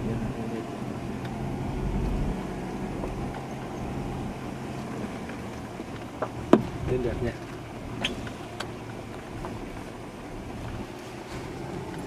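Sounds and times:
low engine hum: 0.0 - 12.0
tyre and road noise: 0.0 - 12.0.

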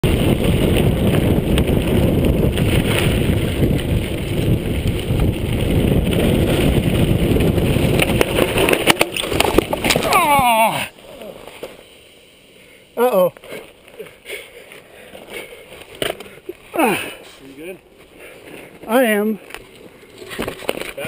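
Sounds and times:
wind buffeting microphone: 0.0 - 10.4
bike frame rattling: 0.0 - 11.9, 13.4 - 21.0
bike tyres crunching on dirt: 0.0 - 21.0.

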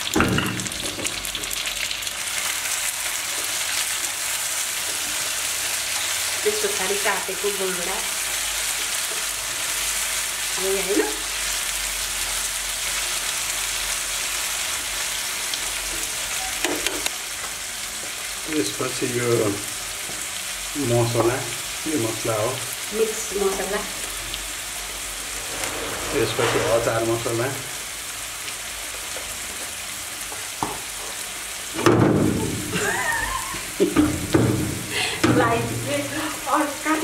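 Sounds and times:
vegetables sizzling in a frying pan: 0.0 - 37.0
spatula scraping a pan: 25.2 - 27.4.

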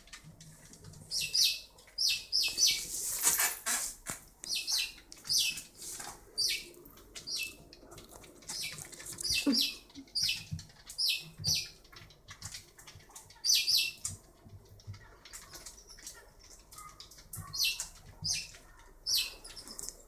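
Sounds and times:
lemon scraping over tile floor: 2.6 - 4.2.

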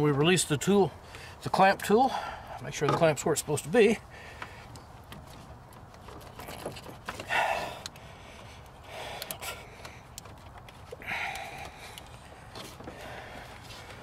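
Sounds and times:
man breathing heavily: 0.9 - 1.4, 2.0 - 2.6, 4.0 - 5.0, 7.2 - 14.0.

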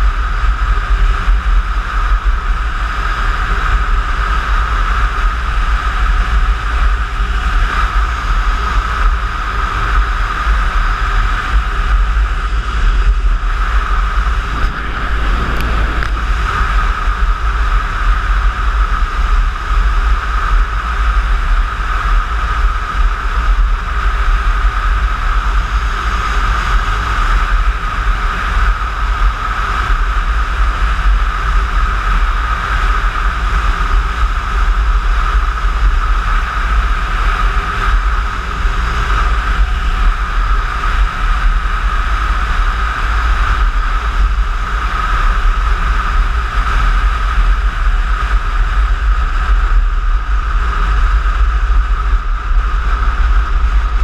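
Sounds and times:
scooter engine running: 0.0 - 32.2
wind rumble on microphone: 0.0 - 54.0.

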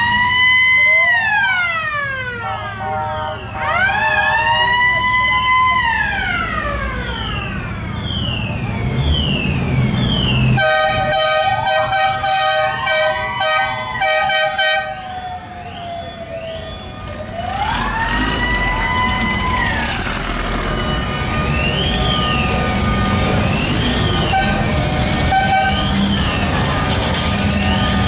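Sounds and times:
multi-tone horn blasts: 2.4 - 4.4, 10.6 - 15.0, 20.6 - 28.0
electronic siren wailing: 3.5 - 10.6, 12.4 - 28.0
engine rumble: 15.0 - 28.0.

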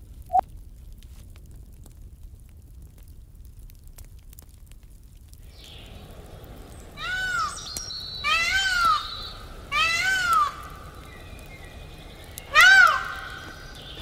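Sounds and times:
peacock calling: 6.8 - 14.0.

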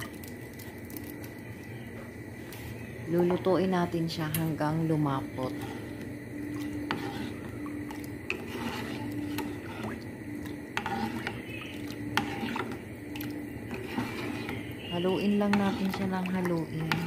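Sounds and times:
faint low hum: 0.0 - 17.0
metal spoon scraping a saucepan: 5.4 - 10.0, 10.7 - 17.0.

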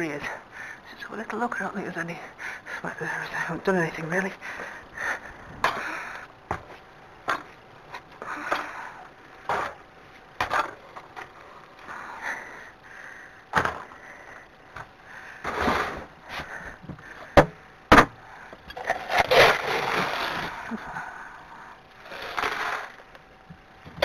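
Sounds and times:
feed rustling and scraping: 15.4 - 16.6, 18.7 - 20.8, 22.0 - 23.2.

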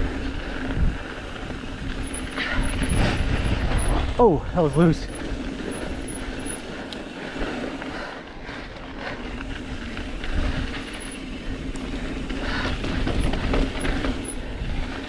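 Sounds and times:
wind on microphone: 0.0 - 7.4
bike clicks and rattles: 0.0 - 15.0
bike tyres on loose dirt: 0.0 - 15.0.

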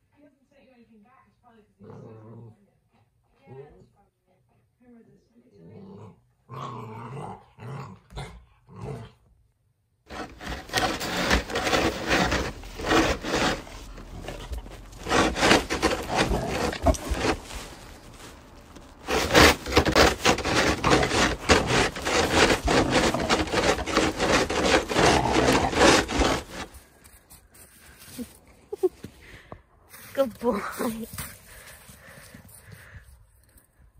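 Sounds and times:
puppy growling: 10.1 - 18.0, 19.0 - 26.7
snow shovel scraping snow: 10.1 - 28.8, 29.9 - 31.7.

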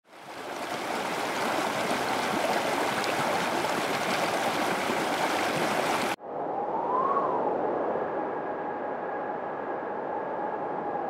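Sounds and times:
river rushing over rapids: 0.1 - 6.2.

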